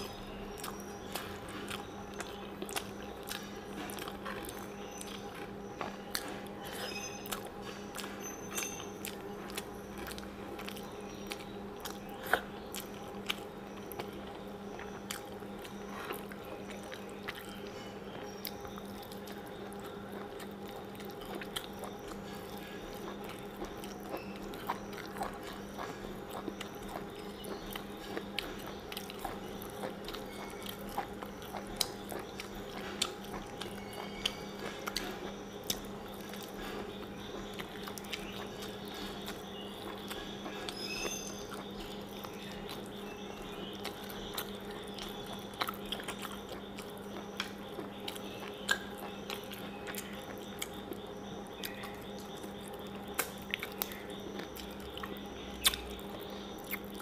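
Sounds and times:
person chewing meat: 0:00.0 - 0:57.0
steady low hum: 0:00.0 - 0:57.0.

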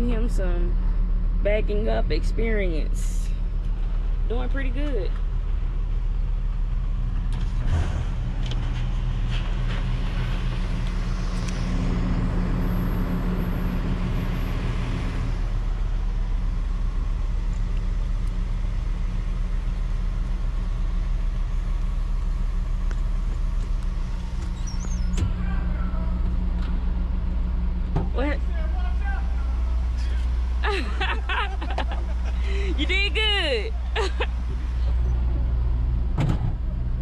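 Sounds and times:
truck engine low drone: 0:00.0 - 0:37.0.

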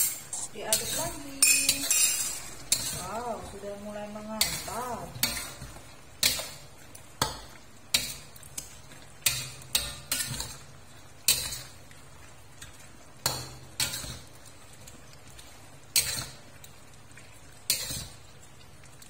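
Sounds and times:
spatula scraping and knocking on wok: 0:00.0 - 0:03.3.

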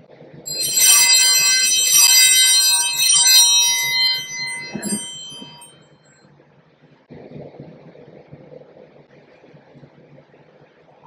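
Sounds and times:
altar bells ringing: 0:00.5 - 0:05.9.

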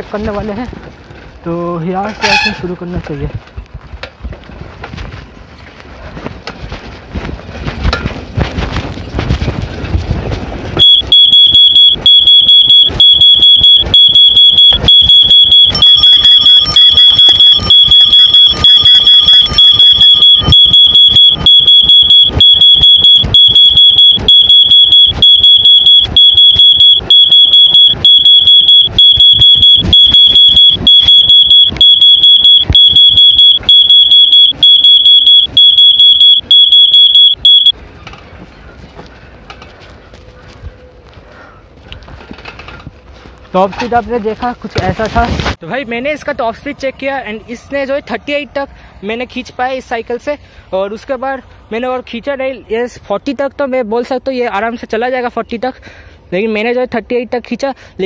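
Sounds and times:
wind and riding noise: 0:00.0 - 0:10.9, 0:37.7 - 0:49.6
shrill electronic alarm beeping: 0:10.8 - 0:37.8.

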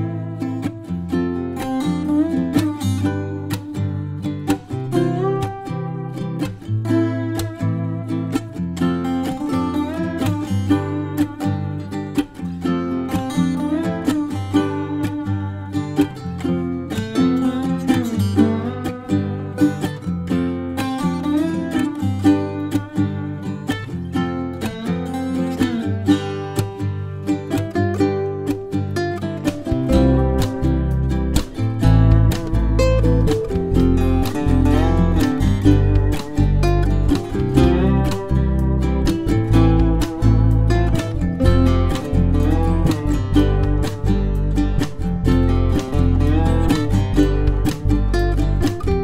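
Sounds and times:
plucked string instrument music: 0:00.0 - 0:49.0
bass line: 0:29.0 - 0:49.0.

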